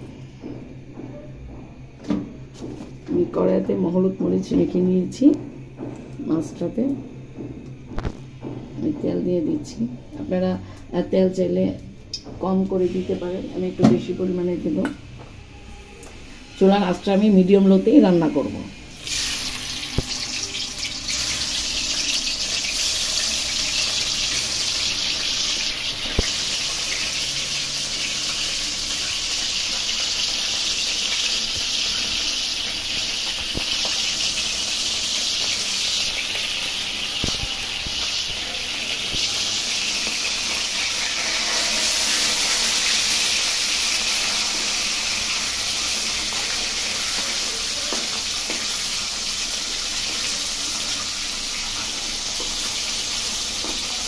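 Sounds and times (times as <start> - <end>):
fish sizzling in hot oil: 18.8 - 54.0.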